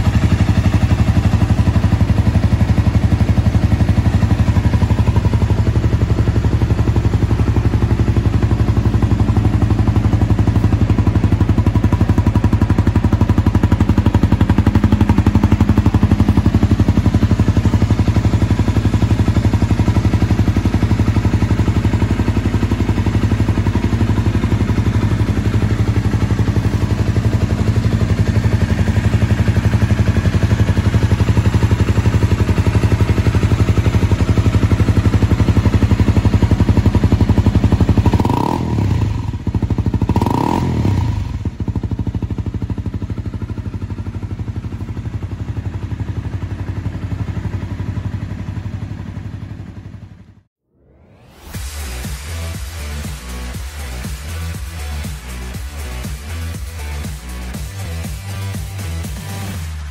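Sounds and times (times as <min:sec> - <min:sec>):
motorcycle engine idling: 0:00.0 - 0:50.5, 0:51.5 - 0:59.9
motorcycle engine revving: 0:00.0 - 0:59.9.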